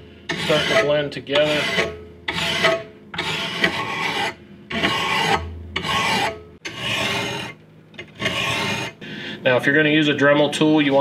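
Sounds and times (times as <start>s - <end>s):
file scraping metal blade: 0.3s - 9.0s.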